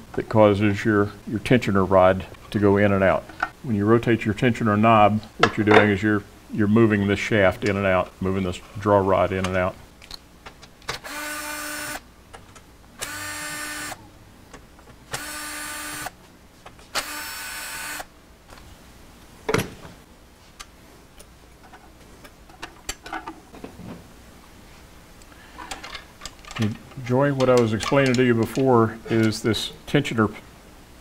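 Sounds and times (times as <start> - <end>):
cordless drill whine: 11.0 - 12.0, 13.0 - 14.0, 15.1 - 16.1, 17.0 - 18.1.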